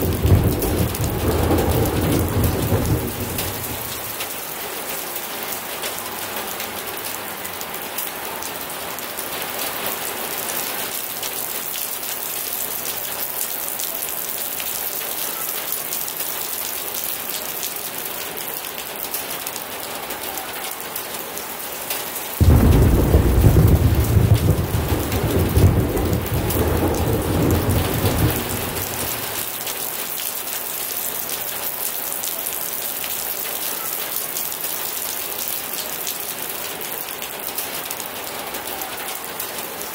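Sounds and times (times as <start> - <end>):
thunder rumbling: 0.0 - 4.2, 22.4 - 29.5
heavy rain: 0.0 - 39.9.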